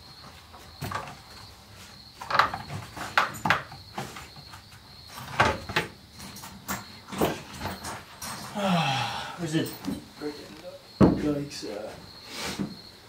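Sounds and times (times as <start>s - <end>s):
car parts and tools knocking: 11.0s - 11.4s.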